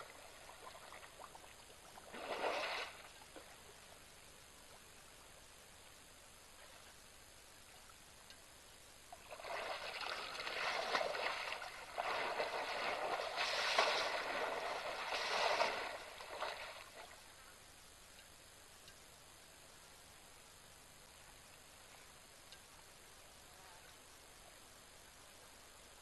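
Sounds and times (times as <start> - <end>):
elephant splashing water: 2.0 - 3.5, 9.2 - 17.2.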